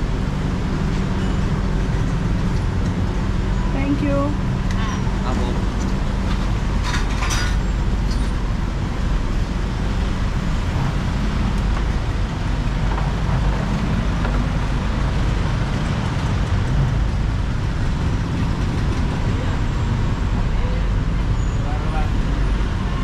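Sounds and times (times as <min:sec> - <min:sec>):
street traffic rumble: 0:00.0 - 0:23.0.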